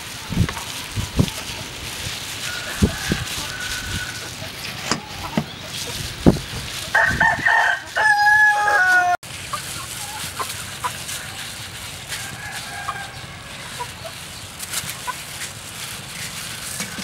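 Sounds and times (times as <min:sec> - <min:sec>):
chicken call: 0:00.6 - 0:14.3
rooster crowing: 0:02.4 - 0:05.4, 0:06.9 - 0:09.2, 0:12.1 - 0:13.9.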